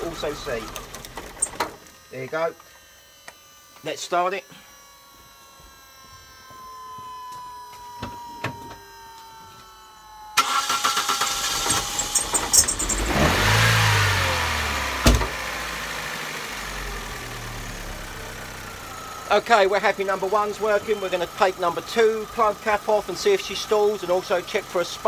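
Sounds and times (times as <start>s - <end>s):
car engine cranking and idling: 0.0s - 2.0s, 10.4s - 25.0s.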